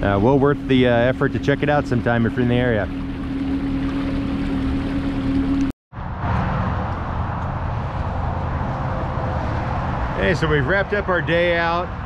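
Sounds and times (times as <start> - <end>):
outboard engine running: 0.0 - 5.7
water and wind noise: 0.0 - 12.0.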